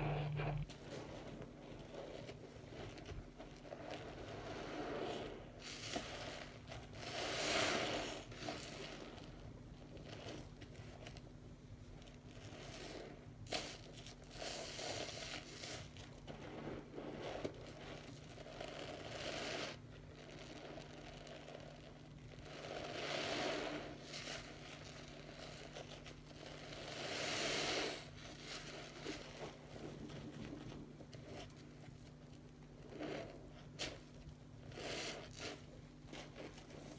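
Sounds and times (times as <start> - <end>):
wet sponges squelching: 0.0 - 11.2, 11.9 - 36.9.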